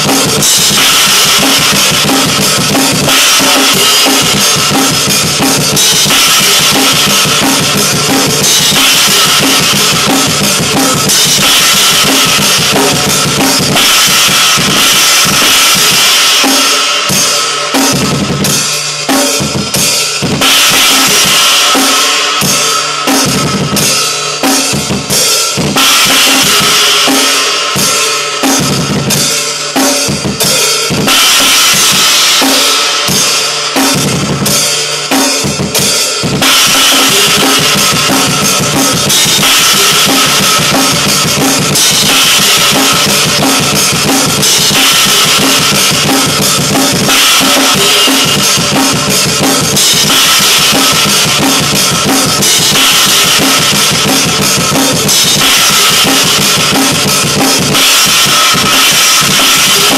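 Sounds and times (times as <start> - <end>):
fast metal drumming: 0.0 - 59.9.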